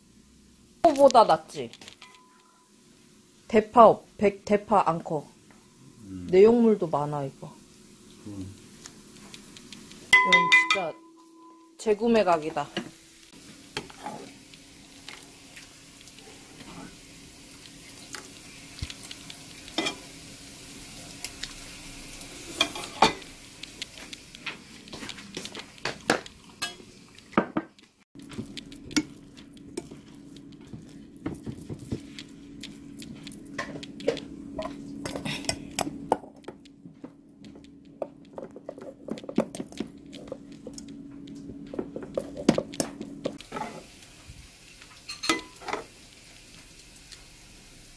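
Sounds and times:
steady low hum: 0:04.0 - 0:26.8, 0:28.2 - 0:43.4
utensils clinking against dishes: 0:10.2 - 0:12.9, 0:19.8 - 0:20.0, 0:22.5 - 0:23.3, 0:45.1 - 0:45.9.

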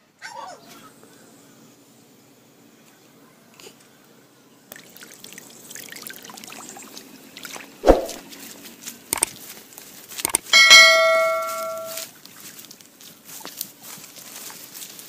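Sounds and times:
water splashing and trickling: 0:04.7 - 0:10.2
sharp knock: 0:07.8 - 0:08.2
clicks: 0:10.2 - 0:11.9
ringing bell chime: 0:10.5 - 0:12.0.

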